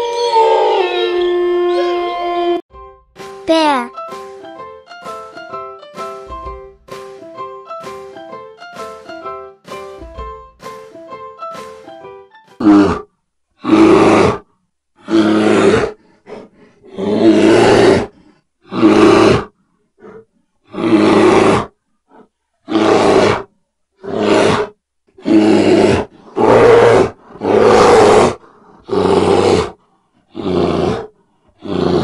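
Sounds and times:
bear roaring: 12.6 - 32.0.

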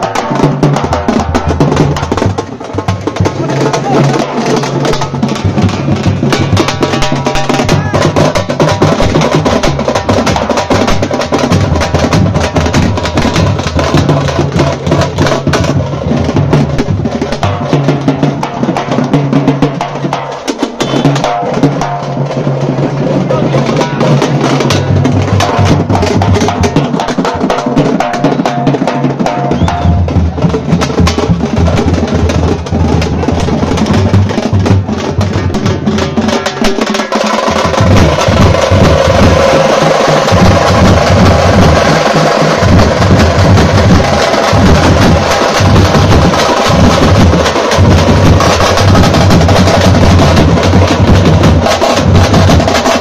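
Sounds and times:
bass drums booming: 0.0 - 17.4, 29.3 - 36.8, 37.4 - 53.0
frame drums playing fast rhythm: 0.0 - 53.0.

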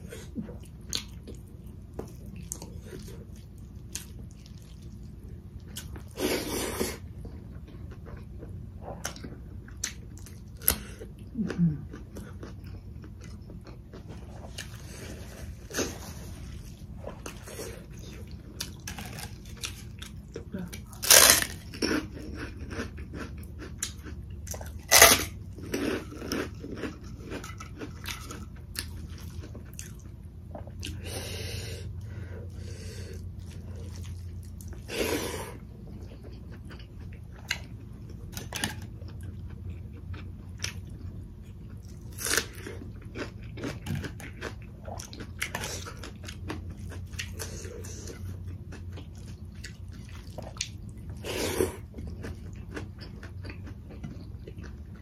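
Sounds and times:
chewing and smacking: 0.1 - 6.2, 7.0 - 31.1, 33.1 - 34.9, 35.5 - 55.0.

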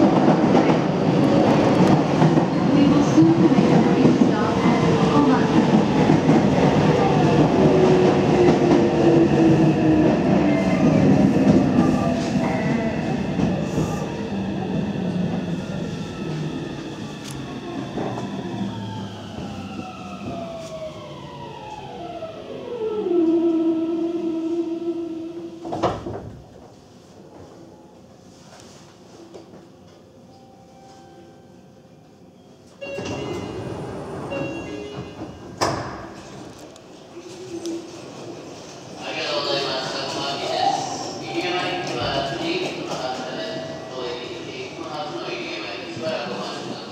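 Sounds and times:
train wheel and track rumble: 0.0 - 22.1, 32.8 - 46.9
train doors sliding open: 32.8 - 38.8.

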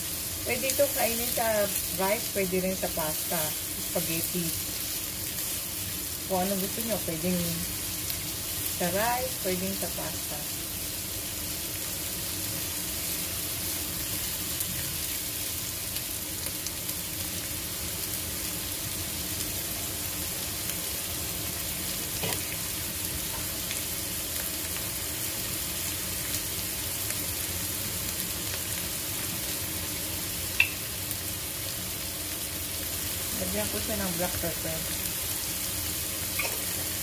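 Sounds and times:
onion sizzling in a frying pan: 0.0 - 37.0.

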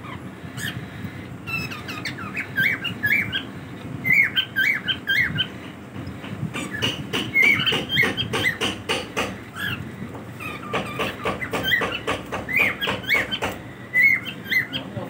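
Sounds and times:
cockatiels chirping: 0.0 - 0.8, 1.5 - 5.6, 6.6 - 8.7, 9.5 - 9.8, 10.4 - 15.0.

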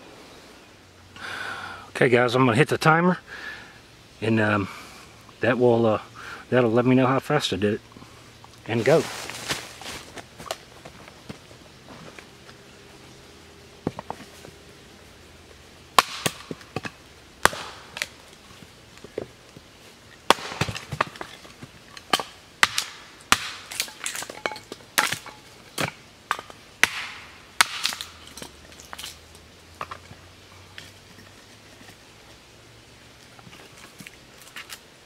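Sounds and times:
hatchet chopping wood: 16.0 - 18.2, 20.3 - 21.4, 22.0 - 24.4, 25.0 - 29.1.

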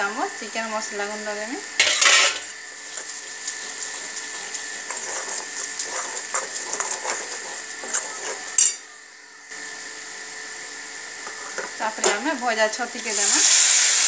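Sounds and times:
frying sizzle in oil: 0.0 - 14.0.

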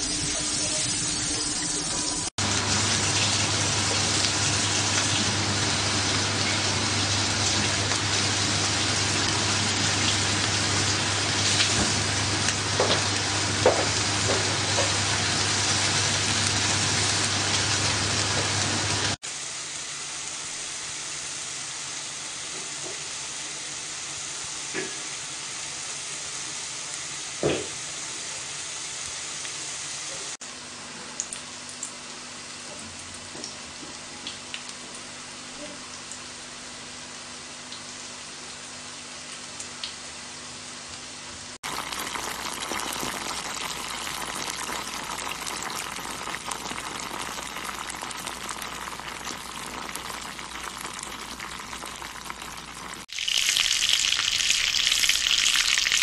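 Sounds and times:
food sizzling in frying pan: 0.0 - 30.4, 41.5 - 56.0
hot oil popping: 2.4 - 19.1, 41.6 - 56.0.

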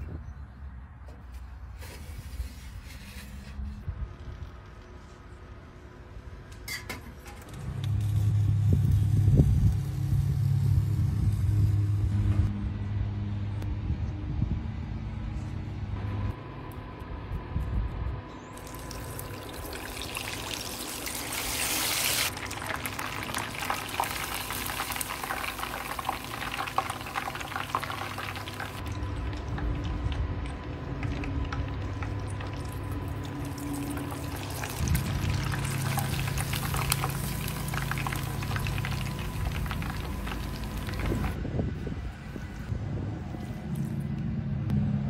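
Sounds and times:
chicken deep-frying in oil: 7.6 - 12.0, 18.6 - 41.4.

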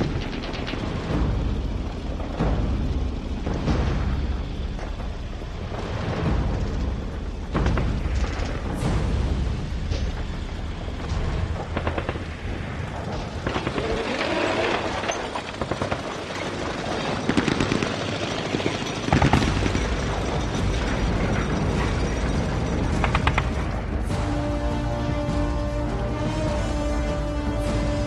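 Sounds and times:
heavy low rumble: 0.0 - 28.0
rapid gunfire bursts: 15.4 - 20.6.

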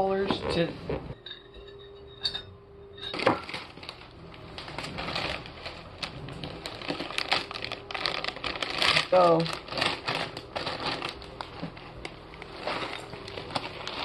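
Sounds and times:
plastic bag crinkling: 3.1 - 14.0.

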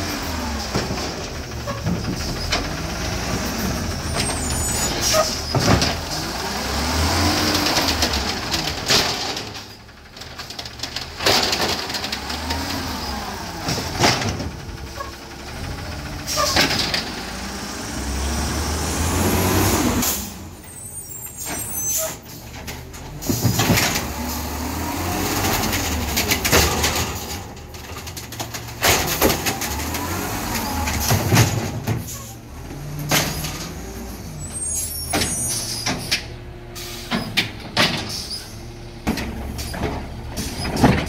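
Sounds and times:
garbage truck engine revving: 0.0 - 9.7, 11.0 - 41.0
air brake hisses: 36.8 - 37.2.

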